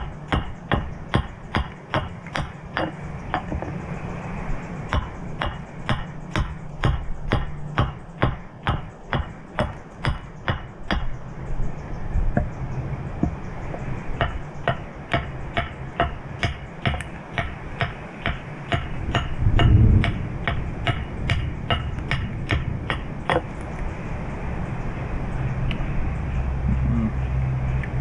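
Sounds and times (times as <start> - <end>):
carving tool striking wood: 0.0 - 3.8, 4.9 - 11.2, 13.2 - 23.5
dull low thump: 18.3 - 23.5.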